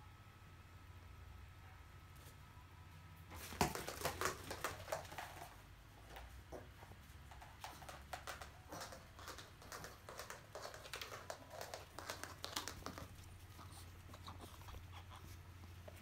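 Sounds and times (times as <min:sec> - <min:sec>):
dog paws pattering on floor: 0:03.3 - 0:16.0.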